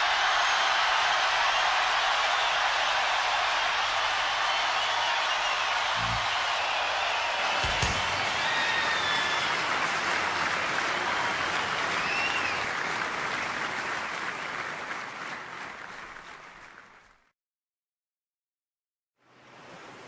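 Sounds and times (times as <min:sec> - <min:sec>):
crowd applause: 0:00.0 - 0:17.3
faint whistles: 0:05.3 - 0:09.8, 0:11.2 - 0:12.7.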